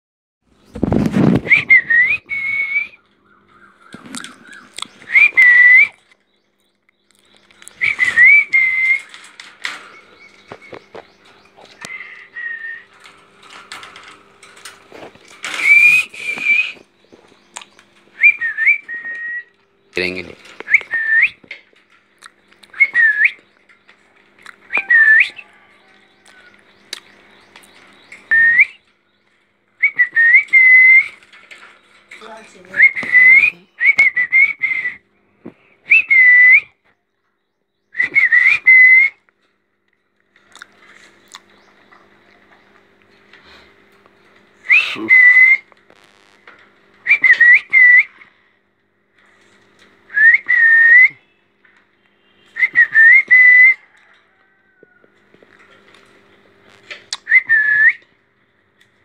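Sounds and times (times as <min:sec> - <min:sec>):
birds tapping on cage: 0:06.9 - 0:36.2, 0:49.1 - 0:58.1
parakeets whistling: 0:07.3 - 0:14.1, 0:15.4 - 0:21.9, 0:24.7 - 0:28.9.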